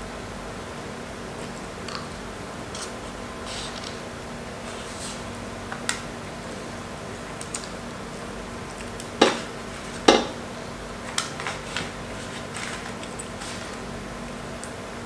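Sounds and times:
knocks on plastic plate: 10.1 - 10.4.

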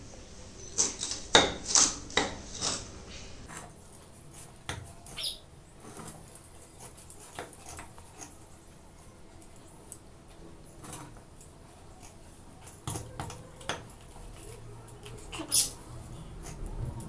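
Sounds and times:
knife cutting fruit: 0.8 - 2.9.

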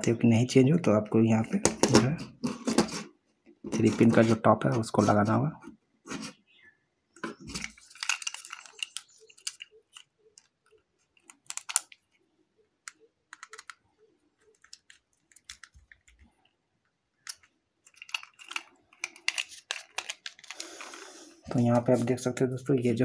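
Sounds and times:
wires being handled: 1.6 - 5.2, 7.2 - 12.2, 12.8 - 16.3, 17.2 - 22.2.

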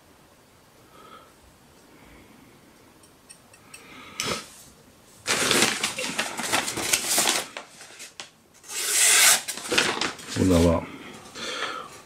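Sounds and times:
folding knife scraping: 8.6 - 9.7.

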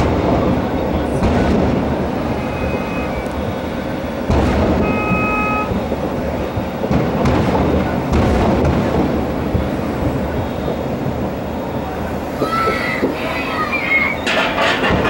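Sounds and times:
sharp firework bang: 0.0 - 11.4
distant fireworks rumble: 0.0 - 15.0
short whistle-like tones: 2.3 - 4.0, 4.8 - 5.7, 10.3 - 11.0, 13.5 - 14.4.

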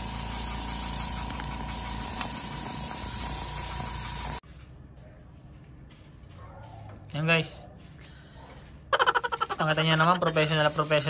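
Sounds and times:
air compressor hum: 0.0 - 4.4, 9.8 - 11.0
paint spray gun hissing: 0.0 - 4.4, 9.9 - 11.0.

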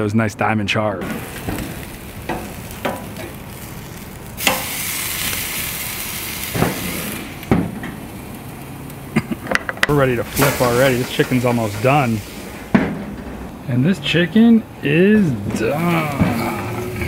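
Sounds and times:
chicken sizzling on grill: 1.0 - 14.2.

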